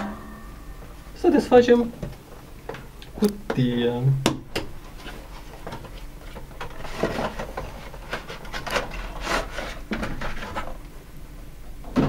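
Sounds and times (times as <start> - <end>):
plastic scraping against cardboard: 6.2 - 10.7.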